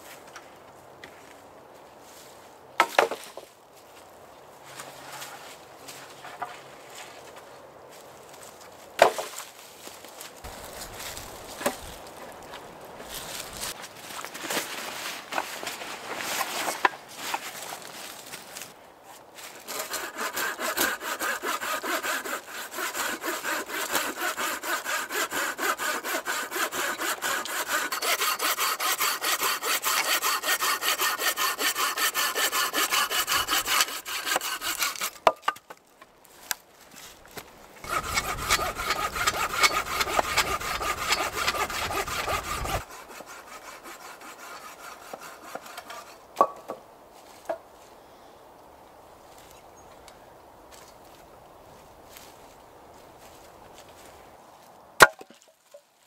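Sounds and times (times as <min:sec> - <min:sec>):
hand saw cutting wood: 0:19.6 - 0:35.4, 0:37.8 - 0:46.2.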